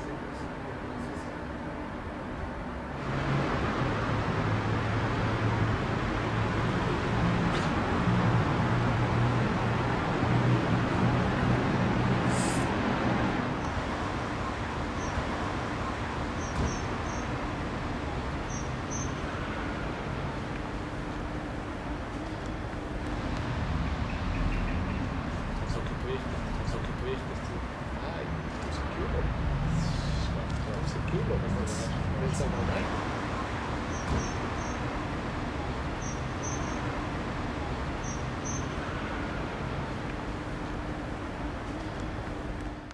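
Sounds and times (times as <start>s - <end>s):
traffic rumble: 0.0s - 42.9s
high bird chirps: 18.5s - 19.2s, 36.0s - 36.8s
steady low rumble: 19.2s - 33.2s.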